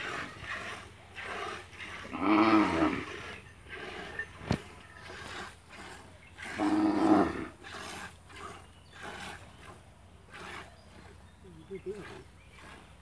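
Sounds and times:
milk squirting from hand milking: 0.0 - 6.9, 7.6 - 13.0
cow mooing: 2.0 - 4.5, 6.4 - 7.6.

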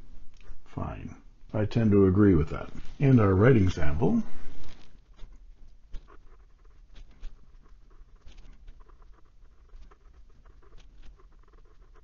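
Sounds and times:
pen nib scratching on paper: 5.0 - 12.0.

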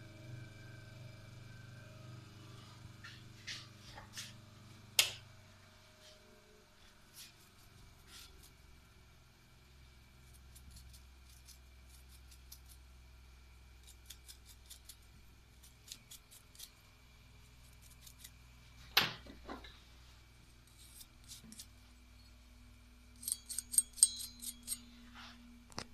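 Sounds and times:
steady low hum: 0.0 - 25.9
brush scrubbing metal comb: 7.2 - 8.6, 10.3 - 12.8, 13.8 - 15.0, 20.6 - 21.8, 23.2 - 25.3
metallic clink: 23.1 - 24.9.

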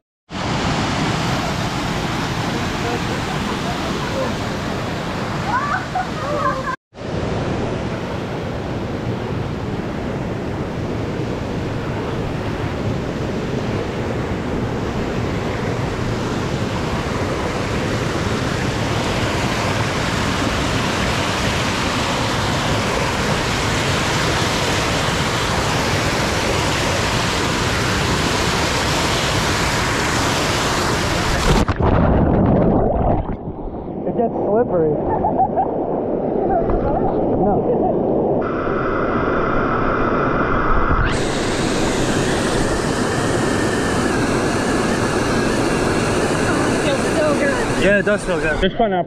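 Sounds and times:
muffled underwater rush with bubbles: 29.4 - 48.6
microphone splashing into water: 31.3 - 33.8
waterfall rushing: 41.0 - 48.6.

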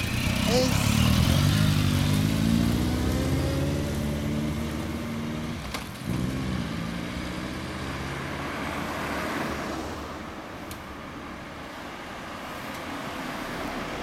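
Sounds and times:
motorcycle accelerating: 0.0 - 9.9.

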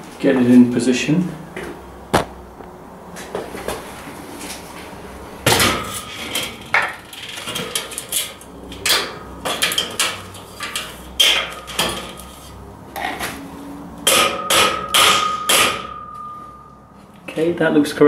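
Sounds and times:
mallet knocking steel beam: 14.1 - 16.4.

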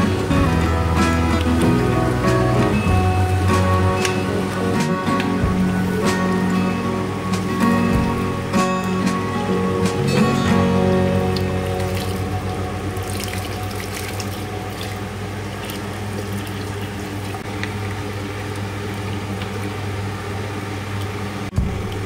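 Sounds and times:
low hum: 0.0 - 22.0
water pouring into pot: 11.1 - 20.3.

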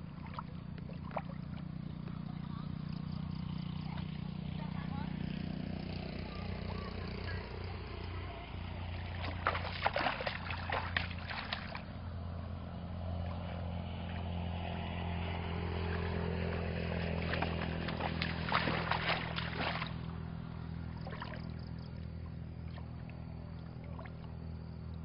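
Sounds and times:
water splashing while wading: 0.0 - 2.4, 8.9 - 12.3, 13.0 - 14.4, 15.8 - 20.2, 20.8 - 24.4
steady low hum: 0.0 - 25.0.

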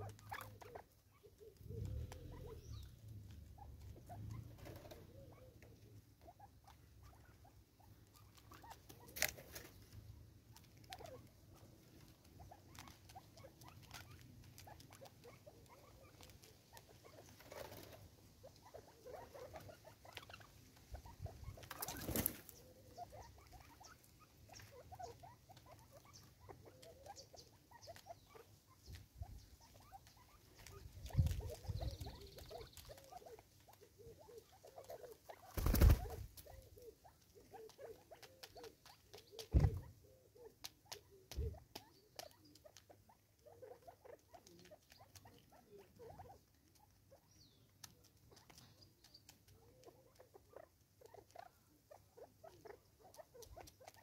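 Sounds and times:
louder beak knocks: 39.5 - 39.8.

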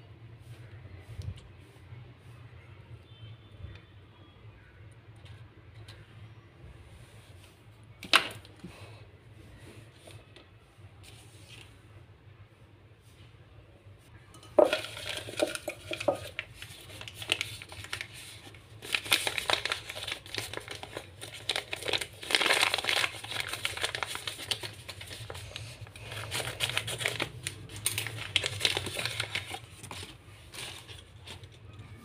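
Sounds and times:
paper bag crinkling: 14.6 - 31.7.

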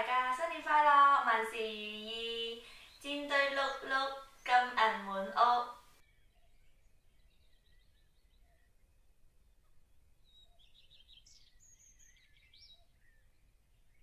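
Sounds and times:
faint bird chirps and whistles: 2.6 - 4.8, 5.7 - 14.0.

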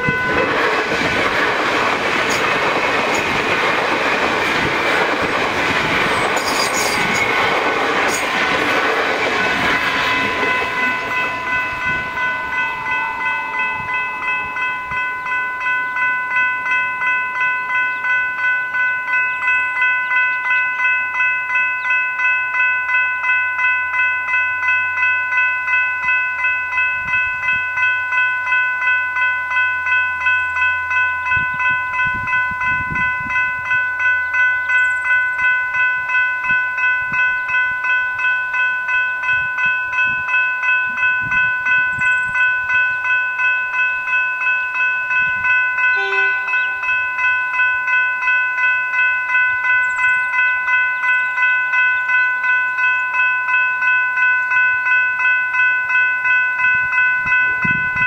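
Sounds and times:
electric train passing: 0.0 - 58.0
level crossing bells ringing: 0.0 - 58.0.

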